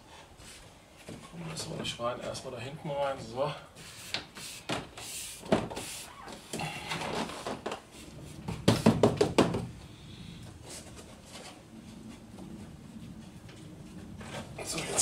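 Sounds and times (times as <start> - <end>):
loud knocks on door panel: 8.6 - 9.7.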